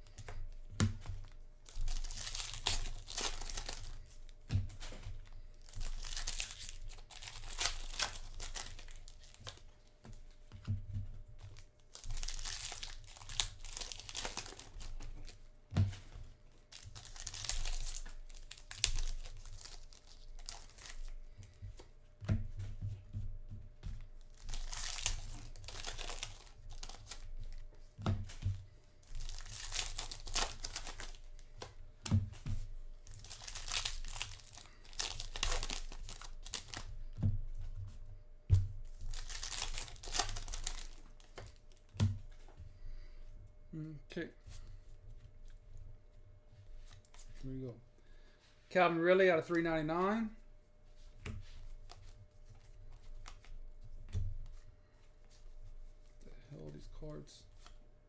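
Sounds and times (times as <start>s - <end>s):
foil wrappers tearing and crinkling: 1.6s - 4.1s, 5.6s - 9.6s, 11.5s - 15.4s, 16.7s - 21.2s, 24.2s - 27.6s, 29.0s - 31.5s, 33.0s - 36.9s, 38.9s - 41.9s.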